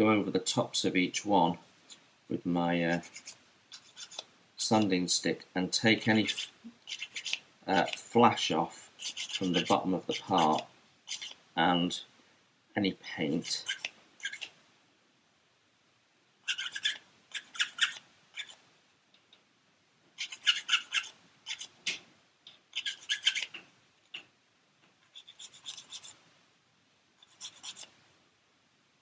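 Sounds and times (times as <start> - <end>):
sanding stick rubbing plastic: 2.9 - 4.3, 6.1 - 8.1, 9.0 - 11.4, 16.5 - 18.6, 20.2 - 21.7, 22.7 - 23.6, 25.1 - 26.2, 27.2 - 27.9.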